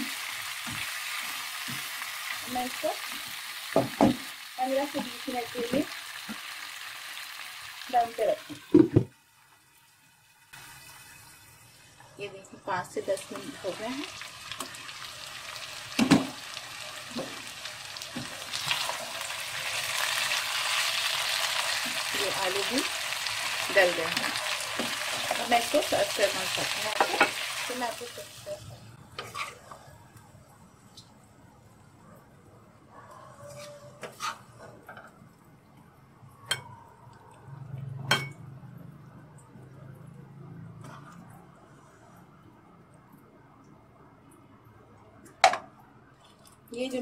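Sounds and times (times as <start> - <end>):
potatoes sizzling in a wok: 0.0 - 29.8.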